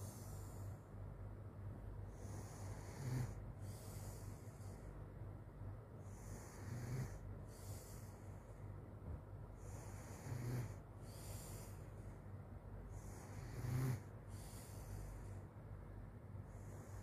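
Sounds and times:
child snoring: 0:00.0 - 0:00.4, 0:02.2 - 0:04.4, 0:06.1 - 0:08.1, 0:09.6 - 0:11.8, 0:12.9 - 0:15.2
hissy breathing: 0:00.0 - 0:01.1, 0:02.0 - 0:05.2, 0:06.0 - 0:08.8, 0:09.5 - 0:17.0.

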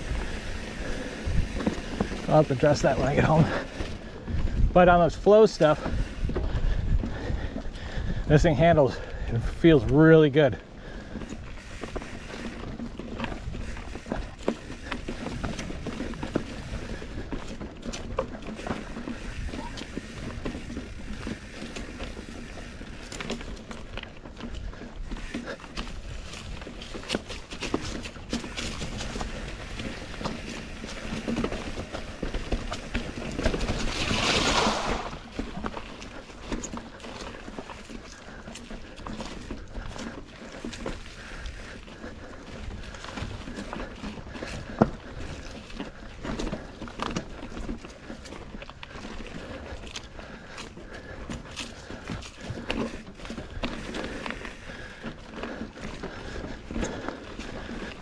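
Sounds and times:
bike rattling over rocks: 0:00.0 - 0:58.0
bike tyres rolling on dirt: 0:00.0 - 0:58.0
tyres splashing through puddle: 0:33.6 - 0:35.6.

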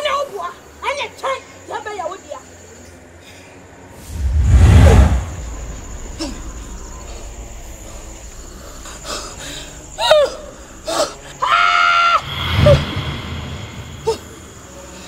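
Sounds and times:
woman screaming: 0:11.4 - 0:12.3.

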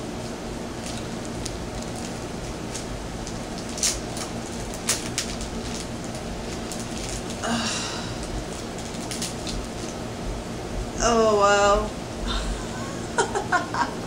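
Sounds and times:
steady background hiss: 0:00.0 - 0:14.0
plastic packet crinkling: 0:00.8 - 0:07.4, 0:08.2 - 0:10.0.

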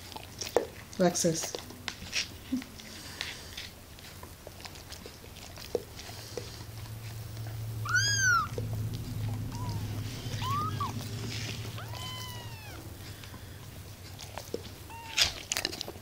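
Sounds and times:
kitten mewing: 0:07.8 - 0:13.4, 0:14.8 - 0:15.6.

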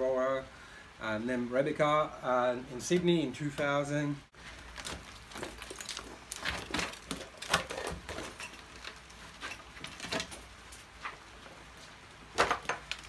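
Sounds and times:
rubber mould rustling: 0:04.4 - 0:13.0.

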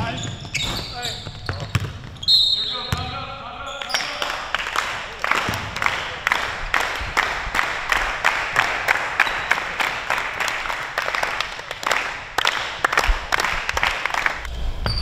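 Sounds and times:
basketballs bouncing on gym floor: 0:00.0 - 0:03.2, 0:05.4 - 0:05.8.

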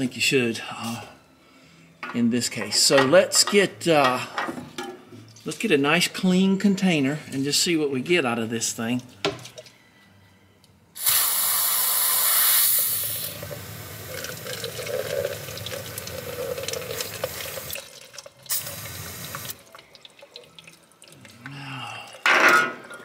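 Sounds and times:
aerosol spray hissing: 0:11.0 - 0:13.9
liquid dribbling into container: 0:14.1 - 0:22.3.

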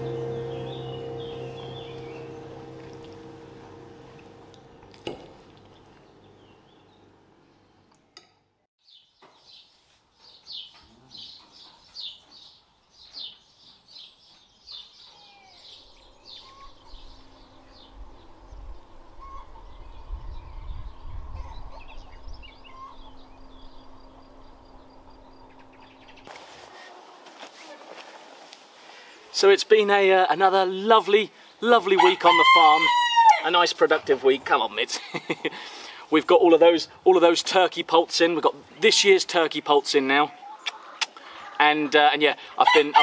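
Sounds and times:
low rumble: 0:00.0 - 0:07.4, 0:15.8 - 0:26.3
low steady hum: 0:00.0 - 0:08.3, 0:15.5 - 0:26.6
small birds chirping: 0:08.8 - 0:26.3.

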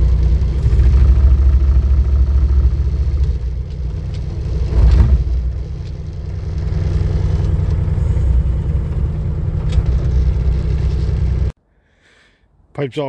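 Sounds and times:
diesel engine under load: 0:00.0 - 0:11.6.

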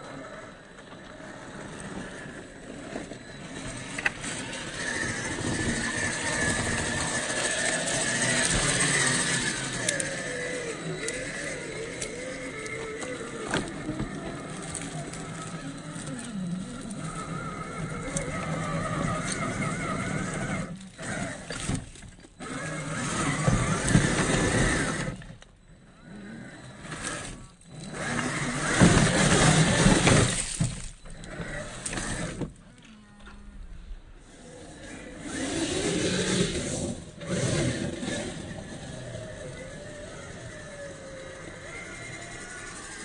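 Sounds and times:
electric motor whining: 0:00.0 - 0:43.0
chassis scraping over rock: 0:00.8 - 0:25.4, 0:26.4 - 0:32.6.

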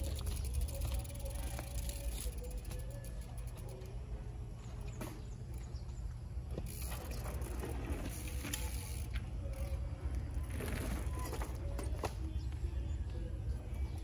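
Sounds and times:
bike clicks and rattles: 0:00.0 - 0:14.0
mountain bike rolling over rough ground: 0:00.0 - 0:14.0.

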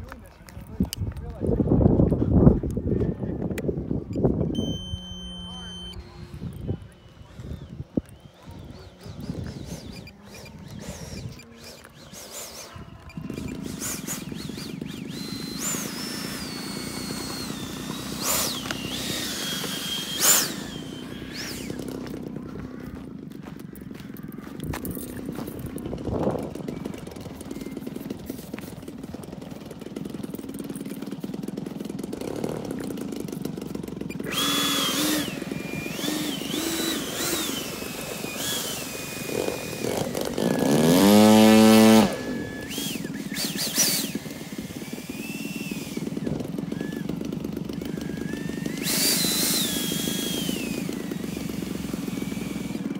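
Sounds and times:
ducted-fan jet whining: 0:00.1 - 0:52.9
loud whine rising in pitch: 0:04.5 - 0:22.2.

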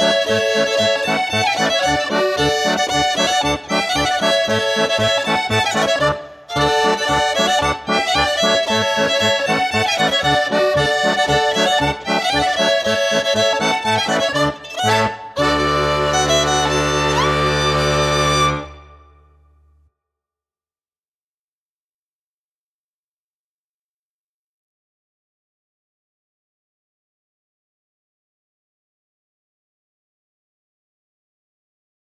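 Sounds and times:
fiddle: 0:00.0 - 0:19.2
accordion: 0:00.0 - 0:19.3.

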